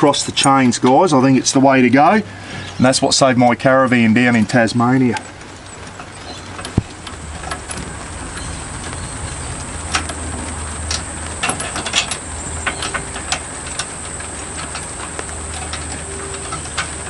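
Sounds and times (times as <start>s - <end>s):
steady high hiss: 0.0s - 17.0s
metal chains and shackles clinking: 4.1s - 17.0s.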